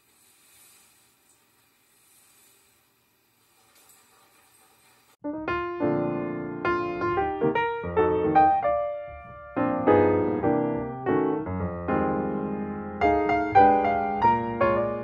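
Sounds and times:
piano music: 5.2 - 15.0.

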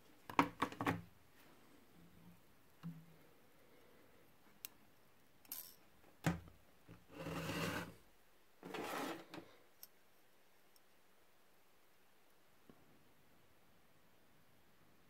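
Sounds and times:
metal wrench rubbing and scraping: 7.1 - 8.0.

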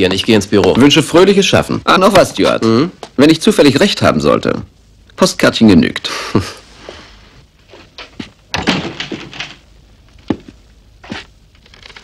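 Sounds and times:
thuds and knocks: 8.2 - 9.6.

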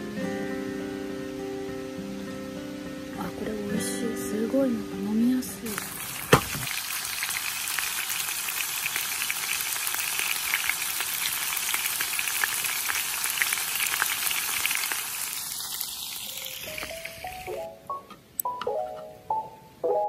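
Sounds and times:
light music: 0.0 - 6.0, 16.7 - 20.0
meat sizzling in a skillet: 5.4 - 17.6.

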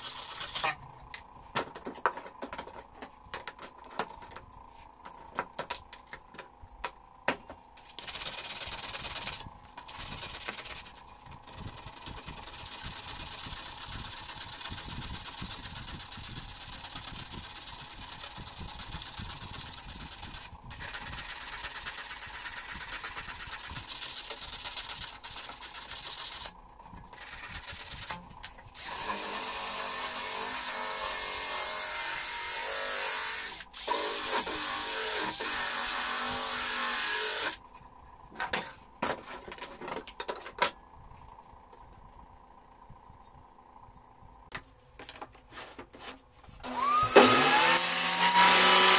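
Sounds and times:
power tool running: 27.1 - 37.6, 46.6 - 48.9
wire brush drill on steel: 28.8 - 37.6, 46.6 - 48.9.

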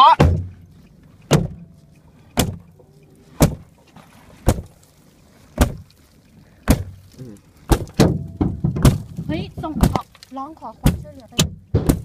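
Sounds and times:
heavy blows on car body: 10.8 - 12.0.

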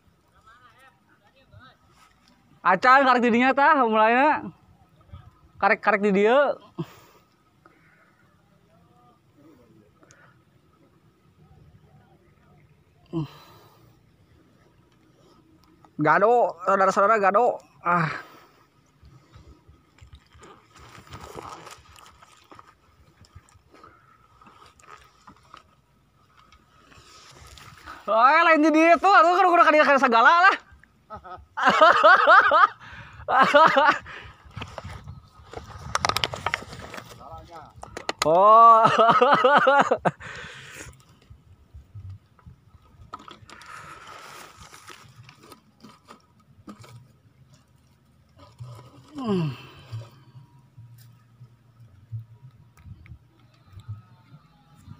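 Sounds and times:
crackling and rustling from handling: 18.7 - 28.1, 34.4 - 38.2, 40.9 - 54.9.

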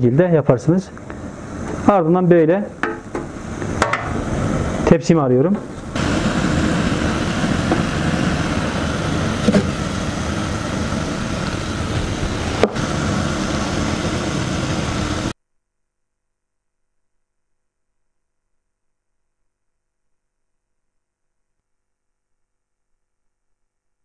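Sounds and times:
water boiling in a pot: 2.6 - 15.4.

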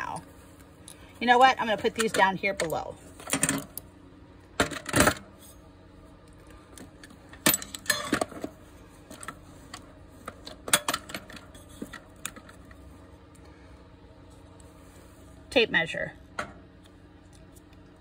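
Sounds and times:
metal tools clattering in toolbox: 7.4 - 8.5.

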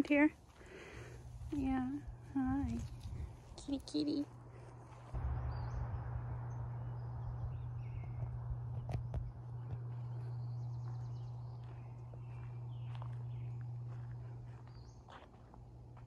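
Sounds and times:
steady low hum: 0.0 - 16.0
footsteps walking: 0.4 - 5.2, 8.3 - 16.0
faint high bird chirps: 9.9 - 15.1.

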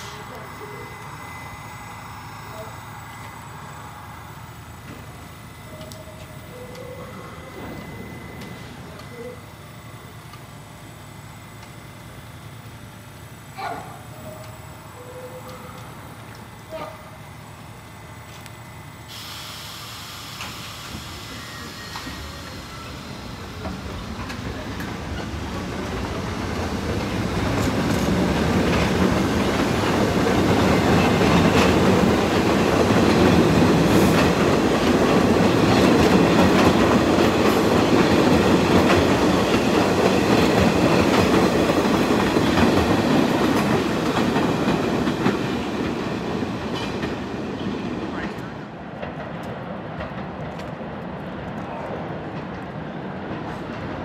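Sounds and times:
train wheels clicking over rail joints: 0.0 - 9.2, 20.3 - 52.8
light wheel squeal: 5.6 - 9.5, 14.1 - 16.0, 21.2 - 23.2.

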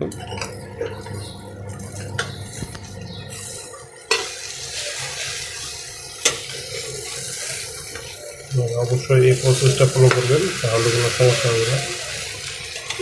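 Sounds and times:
omelette sizzling in oil: 0.4 - 13.0.

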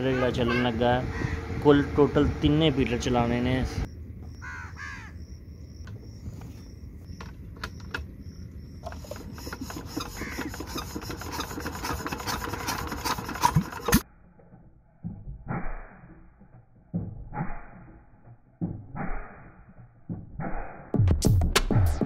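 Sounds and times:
diesel engine hand-cranked: 8.8 - 14.0.

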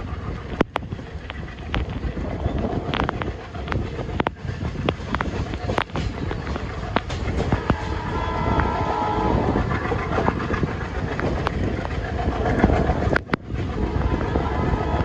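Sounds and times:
clicks over rail joints: 0.0 - 15.0
train wheels rumbling on rails: 0.0 - 15.0.

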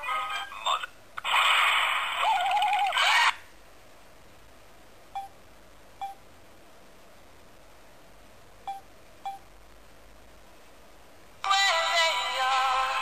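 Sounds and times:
phone keypad beeps: 8.7 - 9.4.

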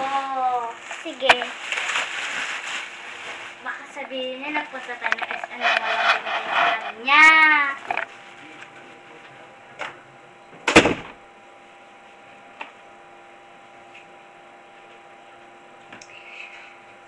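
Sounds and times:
faint steady hum: 0.0 - 17.0
door banging shut: 10.7 - 11.2.

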